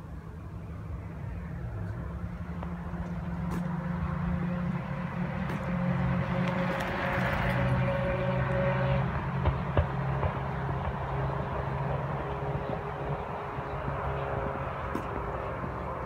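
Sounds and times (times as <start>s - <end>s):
bicycle tyres humming on pavement: 0.8s - 16.0s.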